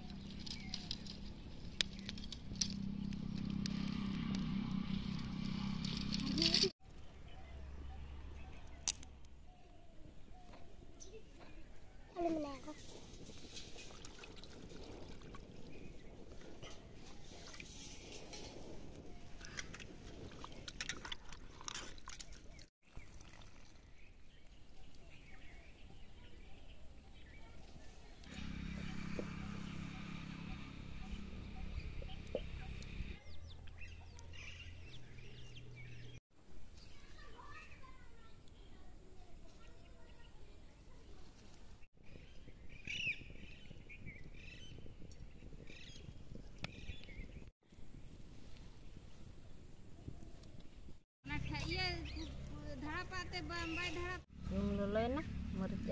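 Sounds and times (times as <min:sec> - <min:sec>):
wood fire crackling: 0:00.0 - 0:06.8.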